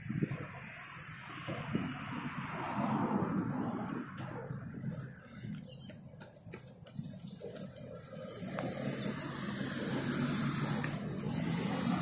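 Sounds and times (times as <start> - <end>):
car driving past: 8.0 - 12.0.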